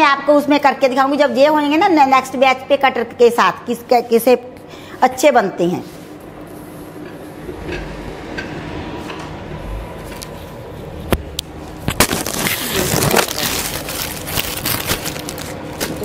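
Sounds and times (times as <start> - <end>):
crackling handling noise: 11.6 - 16.0.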